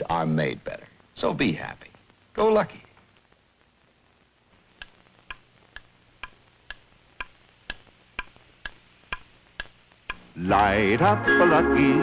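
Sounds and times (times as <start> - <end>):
clock ticking: 4.8 - 10.4.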